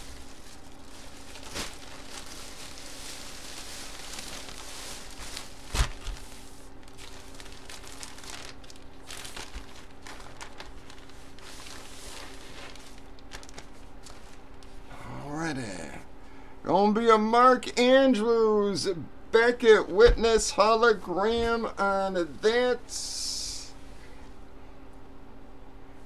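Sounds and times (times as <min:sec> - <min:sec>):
plastic packaging crinkling: 0:00.0 - 0:14.8.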